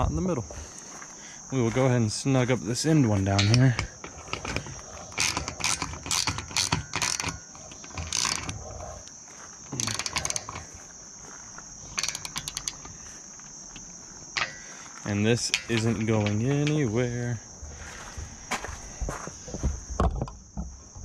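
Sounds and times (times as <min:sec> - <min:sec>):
crickets chirping: 0:00.0 - 0:21.0
socket ratchet clicking: 0:03.3 - 0:09.1, 0:09.7 - 0:10.8, 0:11.9 - 0:13.1, 0:13.7 - 0:16.9.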